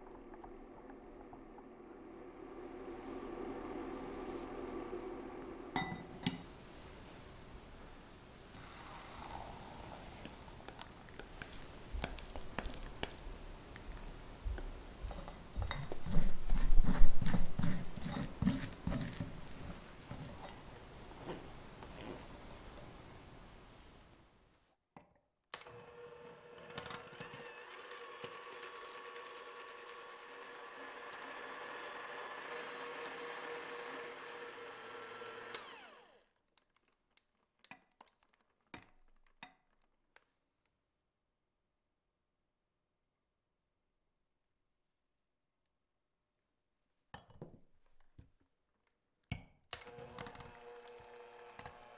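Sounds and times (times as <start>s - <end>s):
spatula squelching through sieve: 15.6s - 20.4s
electric hand mixer whirring: 25.6s - 36.3s, 49.8s - 51.9s.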